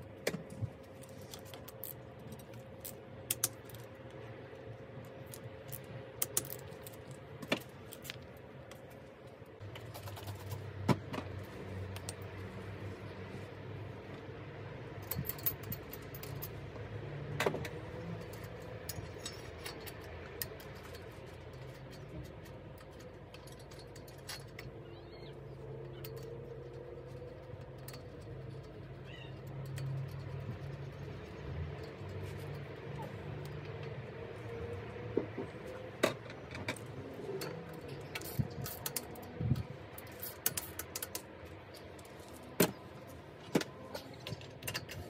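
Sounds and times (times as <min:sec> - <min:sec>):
metallic clicks of bike parts: 0:00.2 - 0:04.2, 0:05.1 - 0:08.8, 0:15.0 - 0:24.9, 0:25.5 - 0:34.0, 0:36.0 - 0:45.0.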